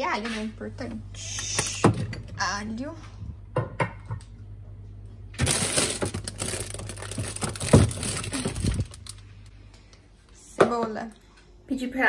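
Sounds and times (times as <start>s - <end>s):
plastic bags rustling and clattering: 5.4s - 9.5s.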